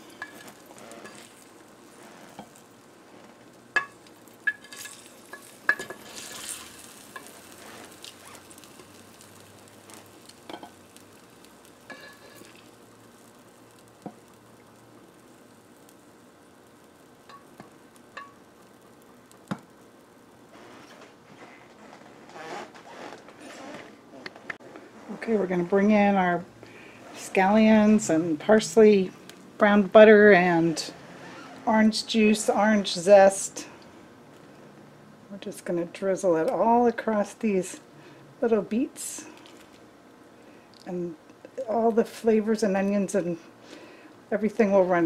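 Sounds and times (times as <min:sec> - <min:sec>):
faint sizzle: 0:00.0 - 0:45.0
metal tongs clinking on dishes: 0:03.8 - 0:07.4.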